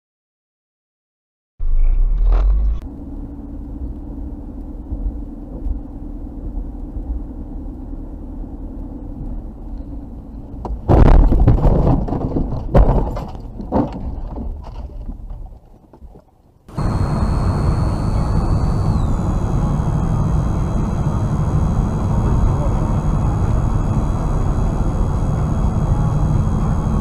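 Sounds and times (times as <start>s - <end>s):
car road and engine hum: 2.2s - 10.9s, 16.7s - 27.0s
car thumping and scraping through brush: 10.8s - 15.1s.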